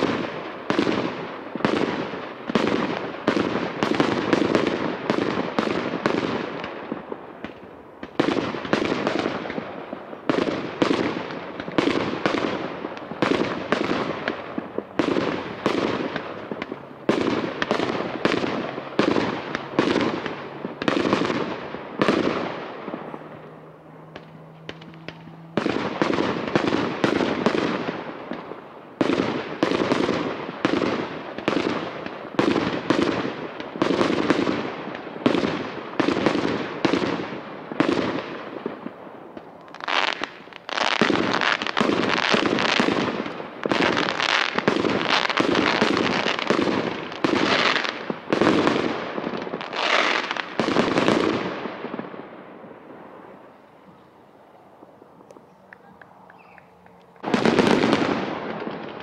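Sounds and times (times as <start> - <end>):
fireworks bangs: 0.0 - 59.0.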